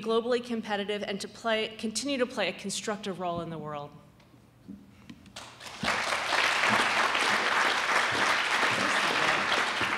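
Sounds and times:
audience applauding: 5.4s - 9.9s.

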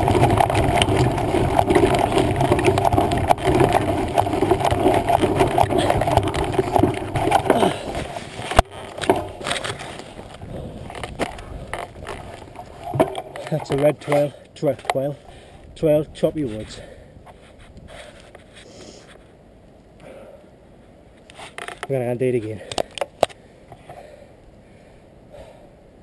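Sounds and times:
wind noise: 0.0s - 14.1s, 15.1s - 18.4s
scattered bumps: 0.0s - 15.4s
bike rattling and knocking: 0.0s - 16.8s
bike tyres on rough trail: 0.0s - 25.6s.

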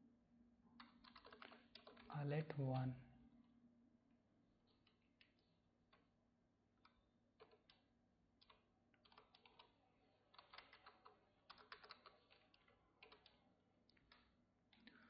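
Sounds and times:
computer keyboard typing: 0.8s - 2.1s, 6.8s - 7.8s, 8.4s - 15.0s.

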